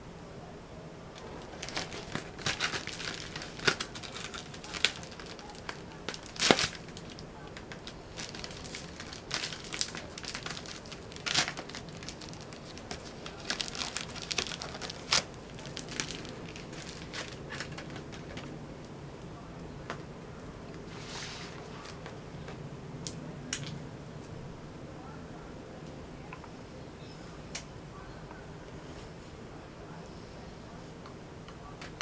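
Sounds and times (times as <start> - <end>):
plastic wrapping crinkling: 1.1 - 18.6.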